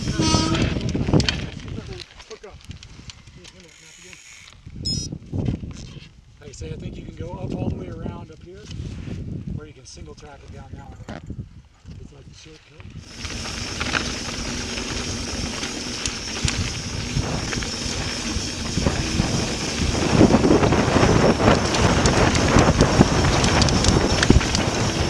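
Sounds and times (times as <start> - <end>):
bike rattling over bumps: 0.0 - 3.0, 13.0 - 25.0
wind on microphone: 0.0 - 3.5, 4.6 - 25.0
bike tyres on loose dirt: 0.0 - 6.3, 12.4 - 25.0.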